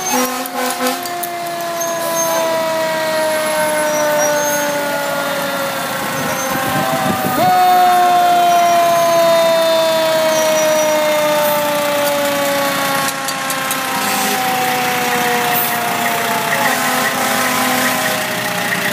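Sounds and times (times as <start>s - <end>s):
fire truck siren winding down: 0.0s - 18.9s
truck engine running: 0.0s - 18.9s.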